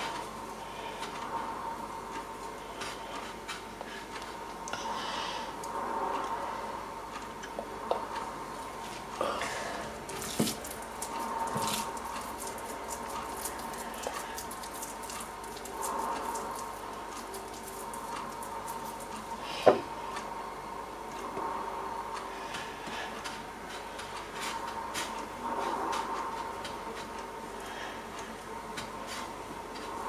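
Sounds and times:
faint steady hum: 0.0 - 30.0
hands squishing minced meat: 10.2 - 19.0.

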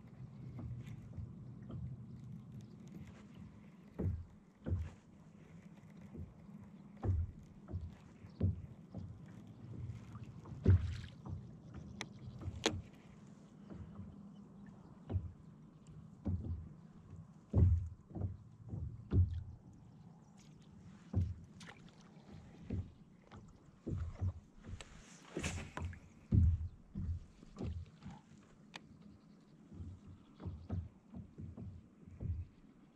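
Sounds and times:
waves knocking plastic kayak hull: 0.0 - 32.9
fishing rod swishing: 24.7 - 26.0.

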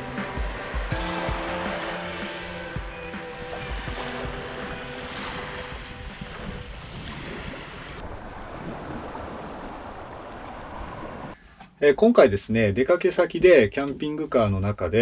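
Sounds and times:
small waves washing on sand: 0.0 - 11.4
wind buffeting microphone: 0.0 - 11.4.

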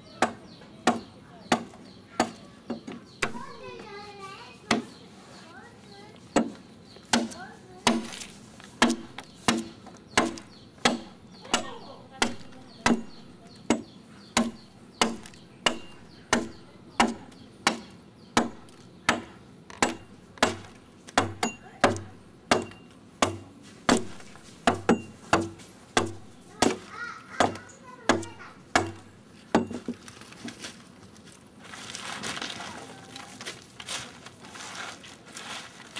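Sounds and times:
adze chopping wood: 0.2 - 3.5, 6.4 - 30.0.

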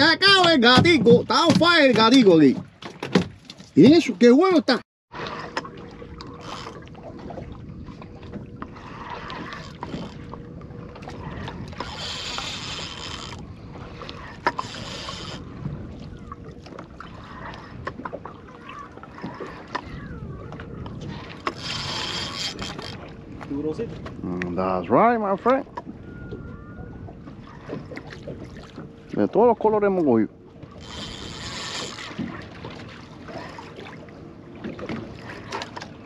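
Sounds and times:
water noise: 0.0 - 36.0
wind on microphone: 5.2 - 29.3, 30.6 - 33.9.

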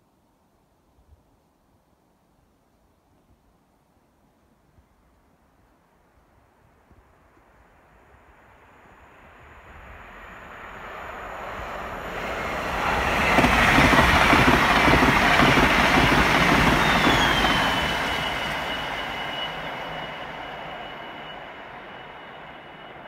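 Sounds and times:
train passing at speed: 7.1 - 23.0.

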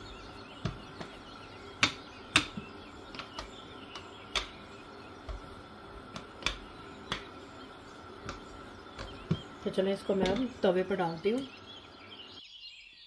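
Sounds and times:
metal rolling pin clicking: 0.6 - 7.4.

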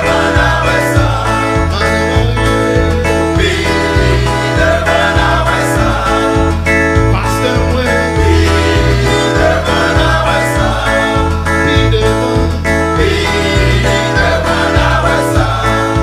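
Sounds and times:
band playing: 0.0 - 16.0
low bass notes: 0.0 - 16.0
men's choir singing gospel: 0.0 - 16.0.

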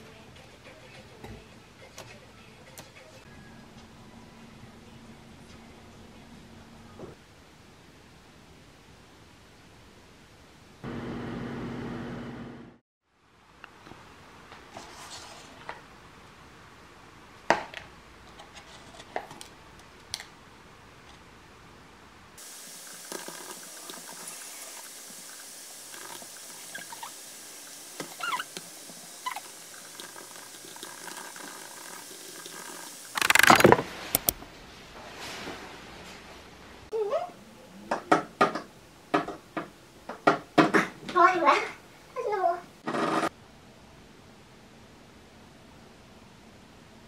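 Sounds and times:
steady hiss: 20.5 - 36.1
sharp clicks: 33.1 - 34.4.

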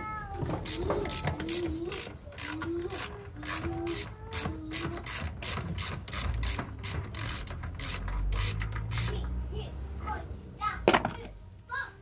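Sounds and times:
ratcheting screwdriver clicking: 0.6 - 9.1.

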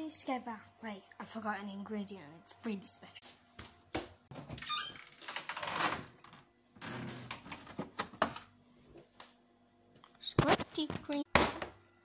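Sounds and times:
fridge door opening and shutting: 4.3 - 8.5.

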